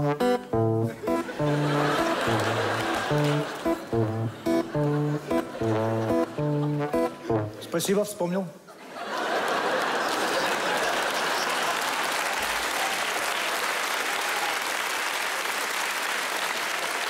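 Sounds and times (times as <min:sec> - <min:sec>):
audience laughter: 0:00.8 - 0:07.7, 0:08.7 - 0:12.6
audience applauding: 0:01.0 - 0:06.7, 0:09.0 - 0:17.0.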